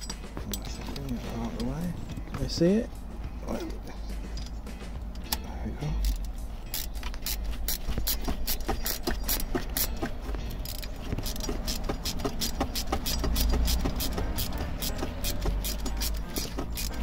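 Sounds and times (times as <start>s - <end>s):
ratchet spanner clicking: 4.2s - 17.0s.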